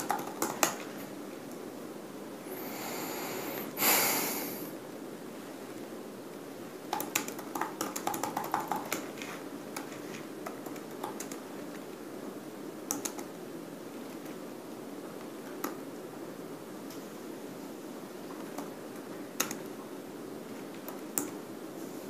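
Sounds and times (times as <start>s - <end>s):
laptop keyboard typing: 0.0s - 1.1s, 6.9s - 11.8s, 12.8s - 13.4s, 18.3s - 19.8s
room noise: 0.0s - 22.0s.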